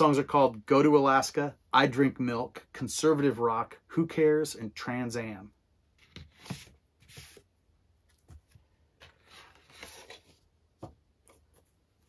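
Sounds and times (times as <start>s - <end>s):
paper rustling and scraping: 6.0s - 7.5s, 9.0s - 10.5s.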